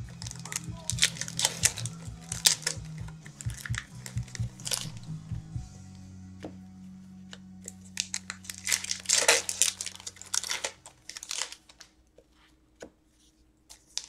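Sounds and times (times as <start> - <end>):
foil wrappers crinkling: 0.0 - 5.2, 7.6 - 12.1, 13.7 - 14.0.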